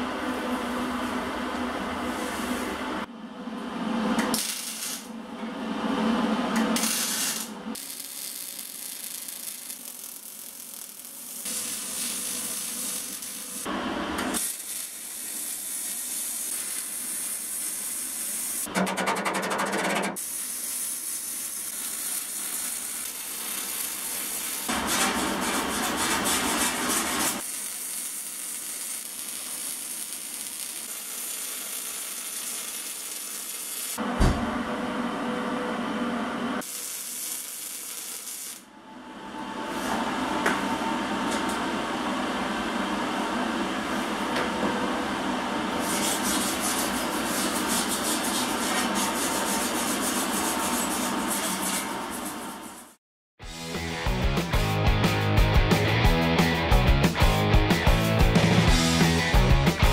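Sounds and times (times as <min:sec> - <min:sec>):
welding arc crackling and hissing: 0:04.3 - 0:05.1, 0:06.8 - 0:18.7, 0:20.2 - 0:34.0, 0:36.6 - 0:38.7.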